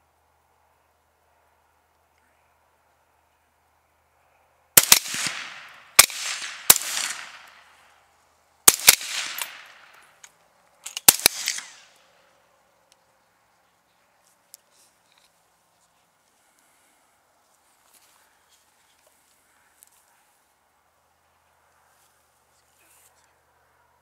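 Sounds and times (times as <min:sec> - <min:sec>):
rifle shots with echo: 0:04.8 - 0:07.7, 0:08.7 - 0:10.0, 0:11.0 - 0:12.0.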